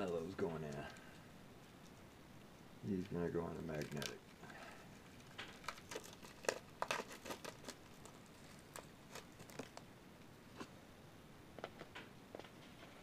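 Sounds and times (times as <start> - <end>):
card crinkling: 2.9 - 9.9.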